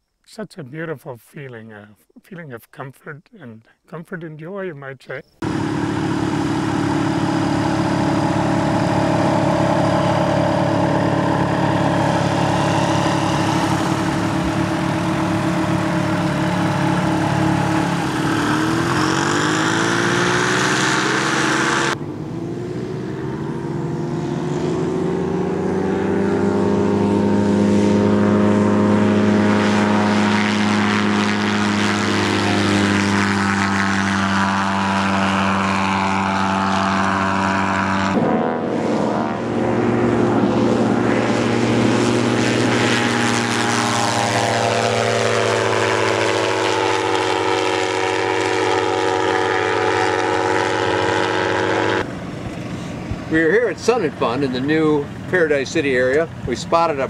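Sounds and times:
ultralight aircraft engine and propeller: 5.3 - 57.0.

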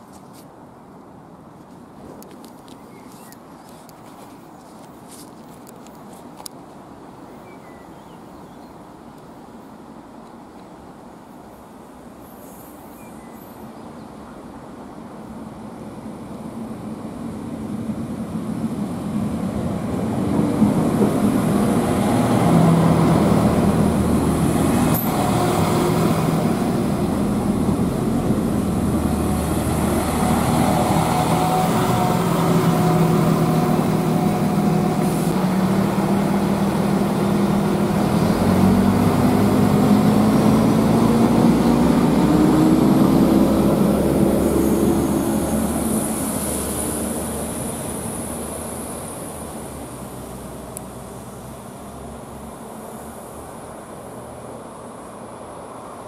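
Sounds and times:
diesel train engines humming: 16.0 - 56.0.

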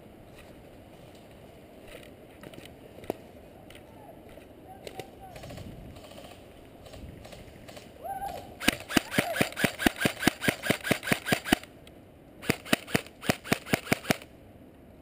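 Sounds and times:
airsoft rifle firing single shots: 8.6 - 11.7, 12.4 - 14.3.

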